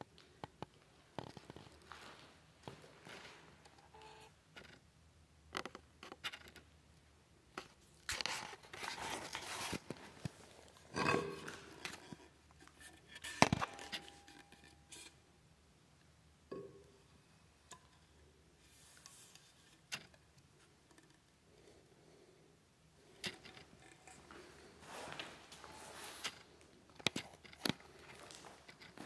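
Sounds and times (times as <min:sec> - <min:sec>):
wood rustling and scraping: 0:07.8 - 0:15.1, 0:23.2 - 0:29.0.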